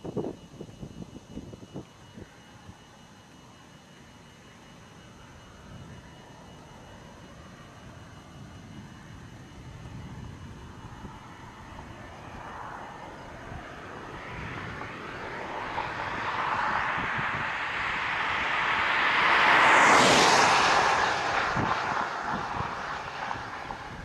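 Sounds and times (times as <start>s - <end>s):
vehicle road noise approaching: 9.2s - 24.0s.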